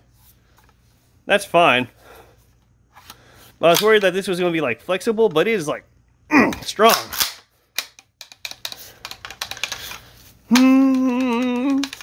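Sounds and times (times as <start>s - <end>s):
shotgun action clicking and rattling: 6.9s - 10.0s
man humming: 10.5s - 12.0s.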